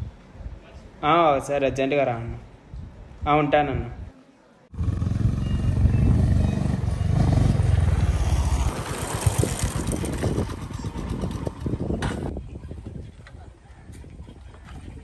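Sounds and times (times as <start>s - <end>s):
motorcycle engine running: 4.7s - 12.3s.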